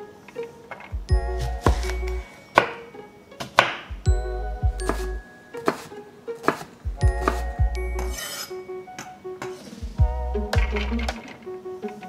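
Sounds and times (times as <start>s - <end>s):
music with deep bass line: 1.0s - 2.2s, 3.9s - 5.2s, 6.9s - 8.1s, 9.9s - 11.2s
knife chopping on wooden board: 1.4s - 2.0s, 3.4s - 3.9s, 4.8s - 8.5s.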